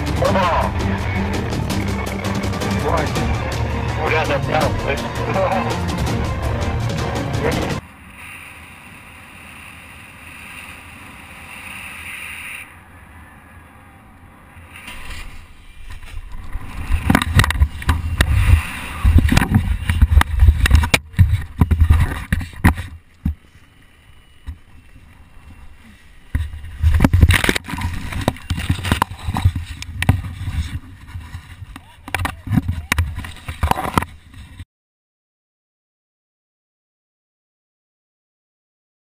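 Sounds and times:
branches and leaves crackling: 14.5 - 33.9
wind buffeting microphone: 15.9 - 22.8.

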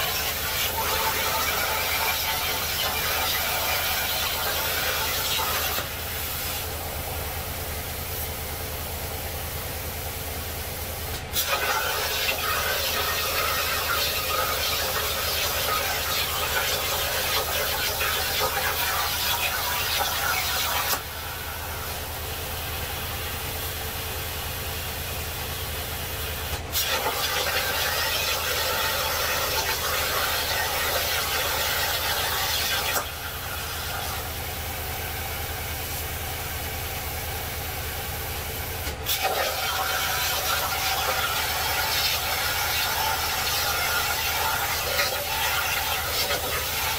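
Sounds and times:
plasma arc hissing: 0.0 - 6.6, 11.1 - 21.0, 26.4 - 34.2, 39.0 - 46.9.

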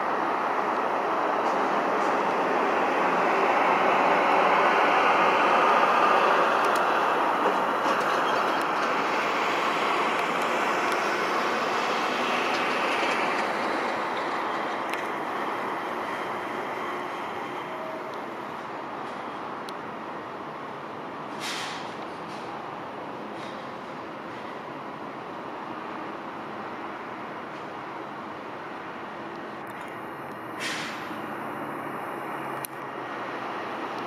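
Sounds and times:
passing vehicle rushing: 0.0 - 18.4.

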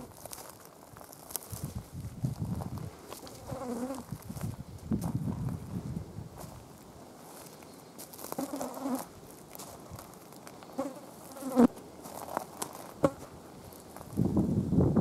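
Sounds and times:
insect buzzing: 3.1 - 4.2, 7.9 - 9.2, 10.6 - 11.8.

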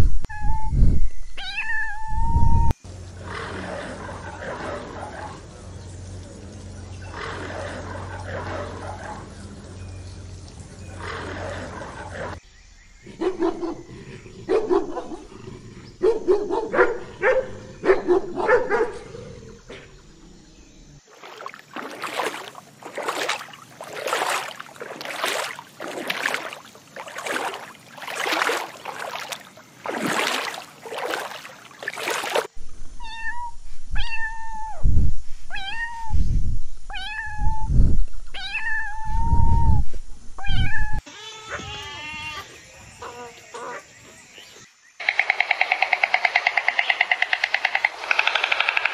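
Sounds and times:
cat meowing: 1.4 - 2.3, 33.0 - 34.8, 35.5 - 36.1, 36.9 - 37.7, 38.4 - 39.5, 40.4 - 42.4.

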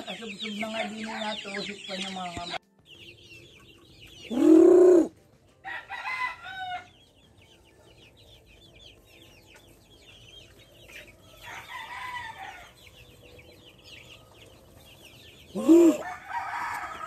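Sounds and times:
chicks peeping and chirping: 0.0 - 17.0
rising-and-falling chicken calls: 4.3 - 5.1, 15.5 - 17.0.

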